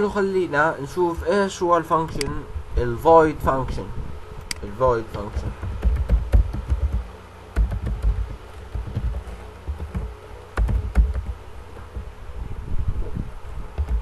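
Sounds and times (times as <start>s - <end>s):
typing on computer keyboard: 5.6s - 7.0s, 7.6s - 11.3s.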